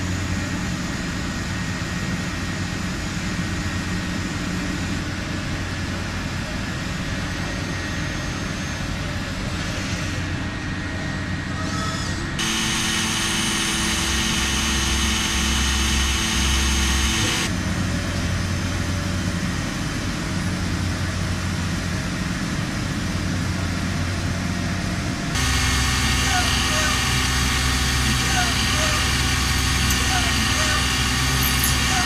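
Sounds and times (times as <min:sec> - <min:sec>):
machine whining tones: 0:11.5 - 0:17.6, 0:25.4 - 0:32.0.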